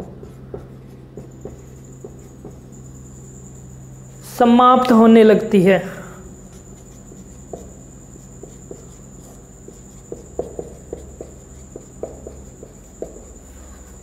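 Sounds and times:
background hum: 0.0 - 14.0
marker squeaking on whiteboard: 0.2 - 3.4, 6.4 - 14.0.

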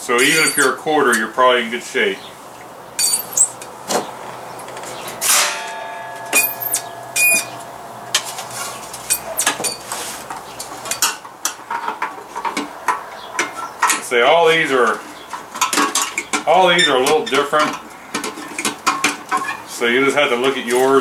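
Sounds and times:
sheet-metal parts clinking: 3.0 - 3.6, 5.2 - 9.8
ringing metal strike: 5.2 - 8.3.

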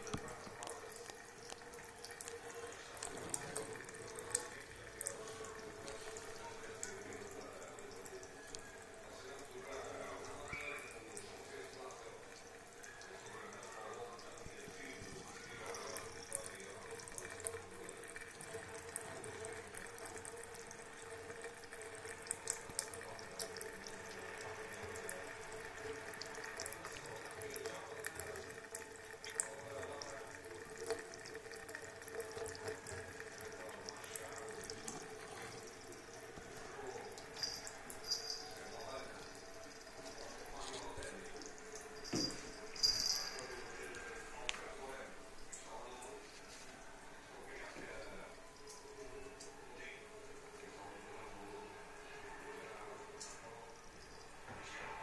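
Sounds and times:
cat lapping water: 0.0 - 42.7.

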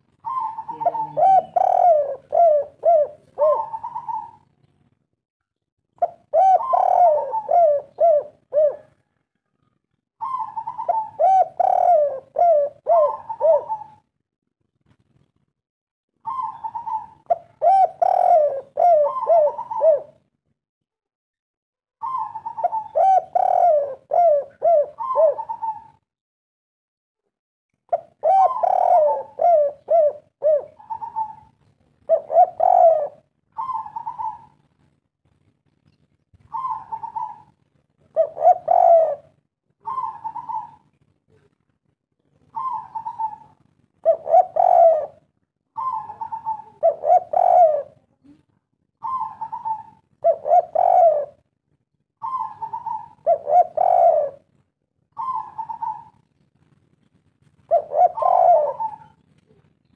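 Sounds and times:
dove cooing: 0.0 - 4.6, 6.0 - 14.1, 16.2 - 20.3, 22.0 - 26.0, 27.9 - 34.7, 36.4 - 41.5, 42.4 - 48.3, 49.0 - 51.6, 52.2 - 56.4, 57.6 - 59.7.

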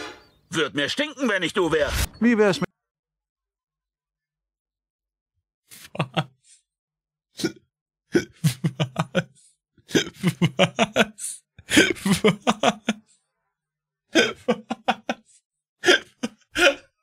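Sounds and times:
man laughing: 5.7 - 6.5, 8.2 - 13.1, 14.2 - 16.8.

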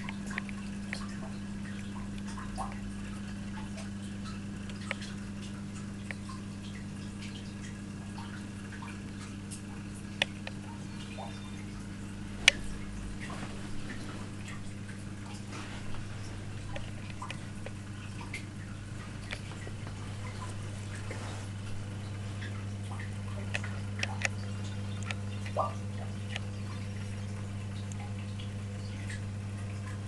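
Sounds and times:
aquarium filter pump humming: 0.0 - 30.0
water drips: 0.0 - 30.0.

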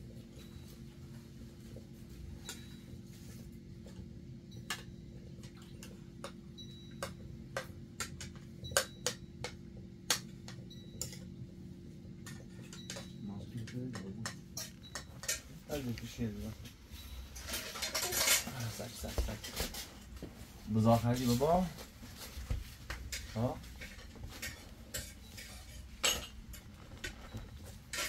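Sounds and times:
light clicks and clinks: 12.2 - 19.9.

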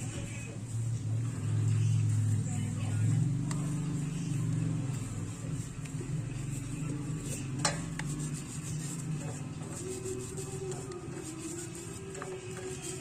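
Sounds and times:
low mechanical hum: 0.0 - 13.0
brush scrubbing plastic bottle: 3.5 - 13.0.

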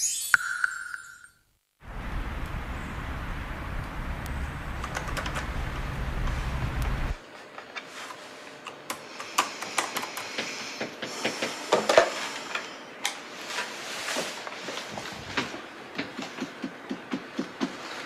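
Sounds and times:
laptop keyboard typing: 4.8 - 5.6.

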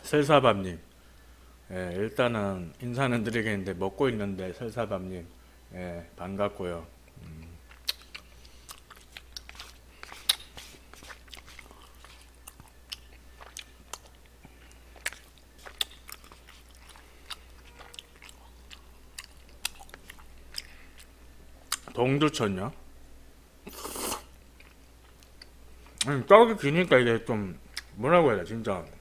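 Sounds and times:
chewing rice cakes: 7.2 - 21.1
wet mouth smacks and clicks: 7.7 - 10.7.

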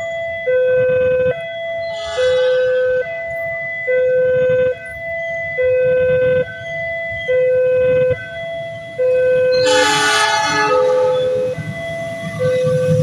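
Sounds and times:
level crossing two-tone alarm: 0.0 - 13.0
diesel locomotive horn: 0.6 - 4.8, 9.1 - 13.0.

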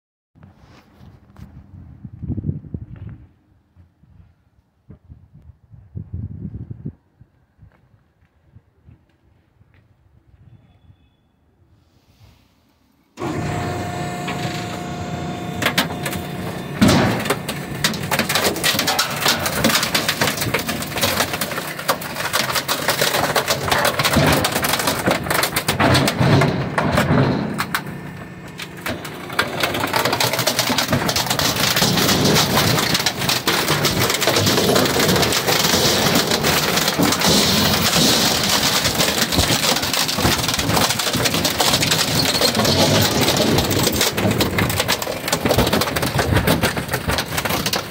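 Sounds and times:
low machine hum: 13.2 - 39.3
wood cracking and splintering: 13.2 - 47.9.

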